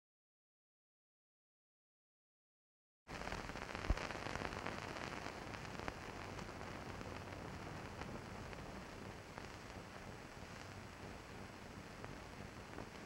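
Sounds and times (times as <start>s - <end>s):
film soundtrack hiss and crackle: 3.1s - 13.0s
clicks and pops: 3.8s - 4.1s.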